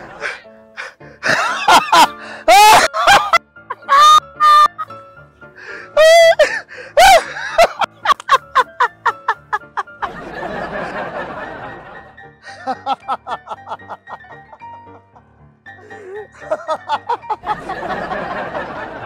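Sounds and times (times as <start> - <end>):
background music: 0.0 - 19.0
man laughing loudly: 1.2 - 4.9, 6.0 - 11.5, 12.5 - 14.7, 15.9 - 19.0.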